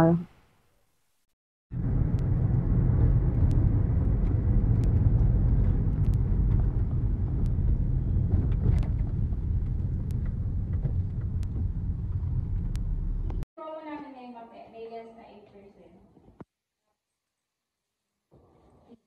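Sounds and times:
car cabin road rumble: 1.8s - 13.4s.

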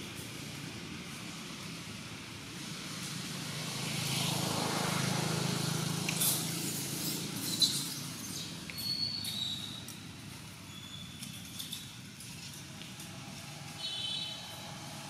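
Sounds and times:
vehicle engine rumble passing: 0.0s - 15.0s.

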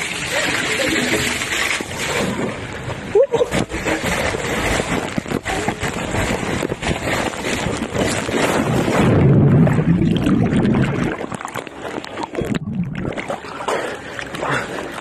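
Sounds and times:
water rushing down a slide: 0.0s - 15.0s
wind on microphone: 3.5s - 13.4s.

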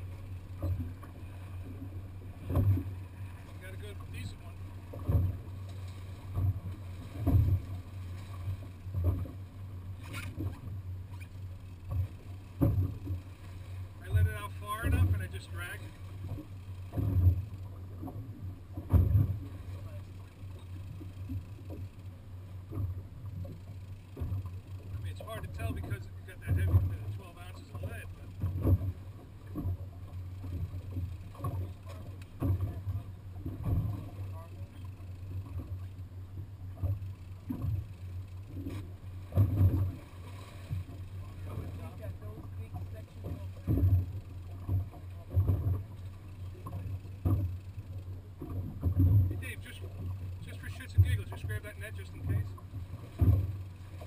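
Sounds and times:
steady low rumble: 0.0s - 54.0s
water slapping against boat hull: 0.0s - 54.0s.

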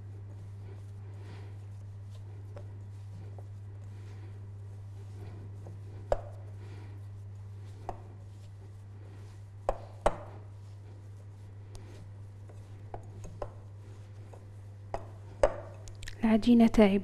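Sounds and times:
hands kneading dough: 0.0s - 16.2s.

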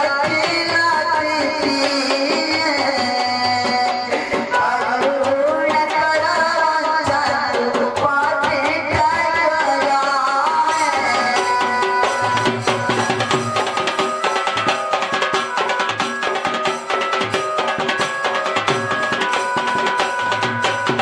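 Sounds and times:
barrel drum rhythm: 0.0s - 21.0s.

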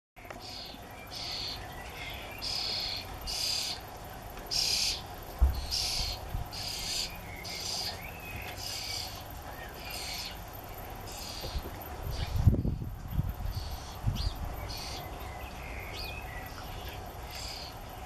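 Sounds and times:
nestling birds hissing calls: 0.2s - 18.0s.

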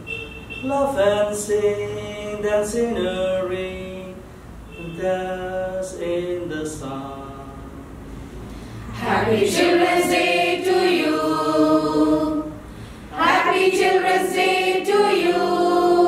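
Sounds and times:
choir singing in unison: 8.9s - 16.0s.

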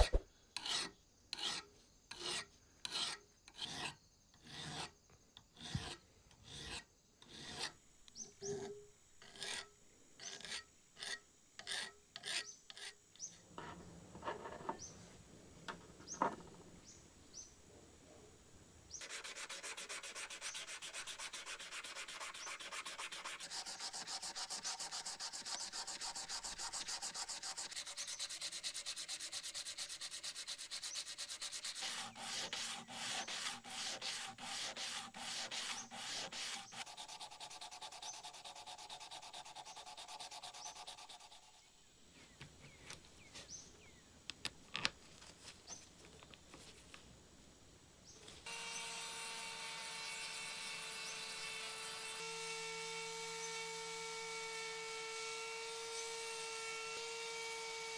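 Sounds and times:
sandpaper rubbing on metal: 19.0s - 41.6s.

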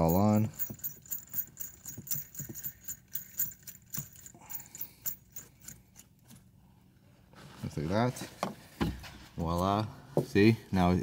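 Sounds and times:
small metal parts clicking: 0.0s - 6.4s.

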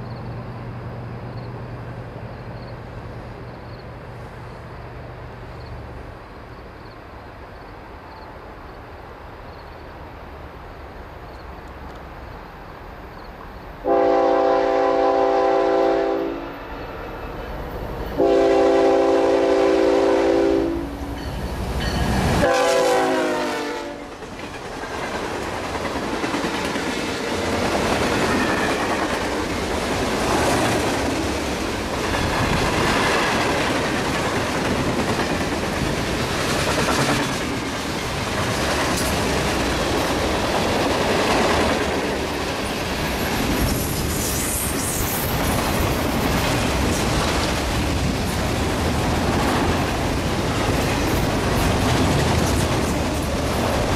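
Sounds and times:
locomotive air horn blasts: 13.8s - 17.1s, 18.2s - 21.0s, 22.4s - 24.1s
train wheels clacking on rails: 21.0s - 53.9s.

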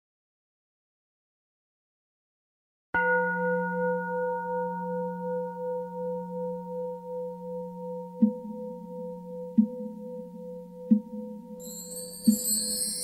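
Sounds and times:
singing bowl ringing: 3.0s - 13.0s.

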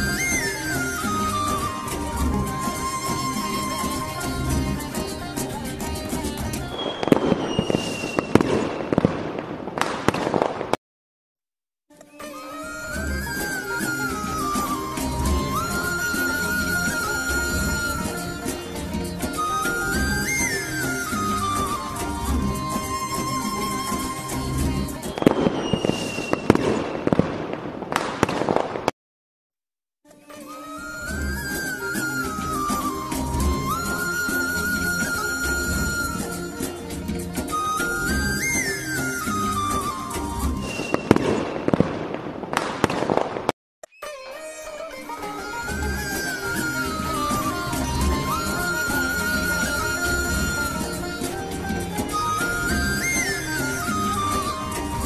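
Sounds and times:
music: 0.0s - 8.9s, 11.9s - 26.8s, 30.0s - 41.7s, 44.0s - 55.0s
falling whistle: 0.0s - 9.2s, 12.1s - 27.0s, 30.4s - 42.1s, 43.9s - 55.0s
fireworks crackling: 0.0s - 10.8s, 12.4s - 29.0s, 30.4s - 43.6s, 45.0s - 55.0s
fireworks bangs: 6.7s - 10.8s, 24.8s - 29.0s, 40.5s - 43.6s.

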